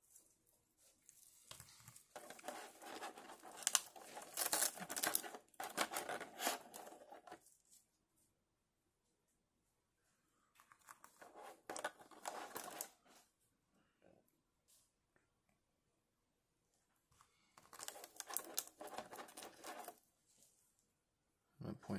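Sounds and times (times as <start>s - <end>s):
plastic blister tray crinkling: 1.1s - 7.5s, 10.6s - 13.0s, 17.6s - 20.0s.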